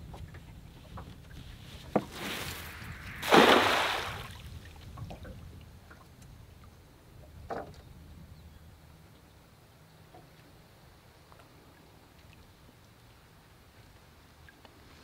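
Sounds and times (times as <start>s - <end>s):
net splashing on water: 1.8s - 4.5s
cast net rushing through air: 1.8s - 4.6s.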